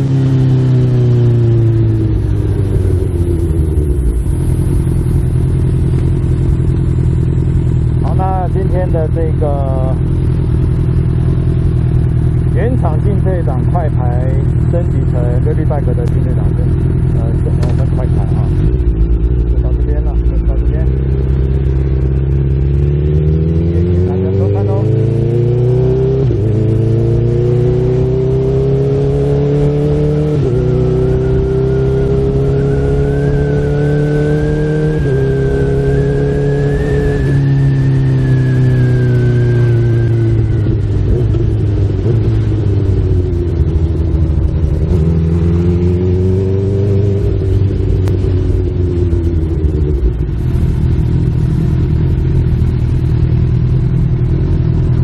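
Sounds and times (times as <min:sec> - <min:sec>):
motorcycle engine accelerating: 0:00.0 - 0:55.0.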